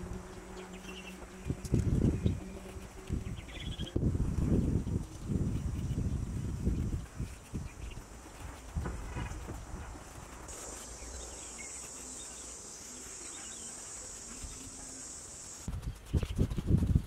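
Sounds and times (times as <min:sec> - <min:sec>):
low thumps and scuffs: 0:08.1 - 0:10.5
high-pitched insect drone: 0:10.5 - 0:15.7.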